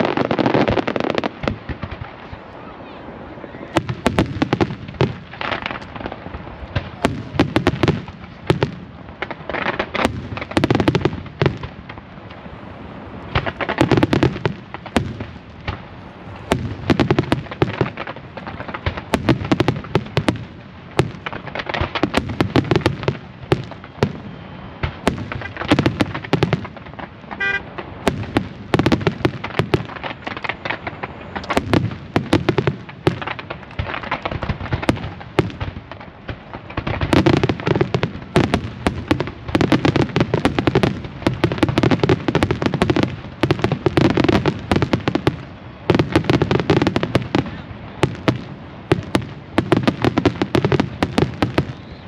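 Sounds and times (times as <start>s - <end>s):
fireworks bangs and crackles: 0.0s - 52.0s.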